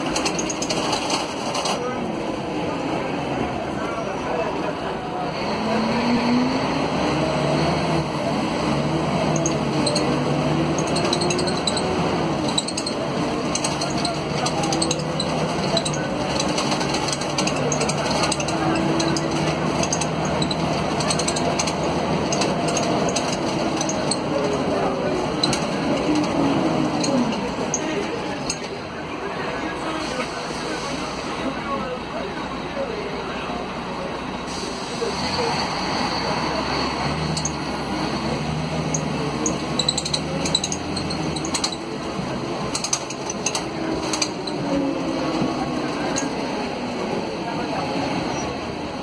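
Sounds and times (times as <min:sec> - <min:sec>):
bus diesel engine running: 0:00.0 - 0:49.0.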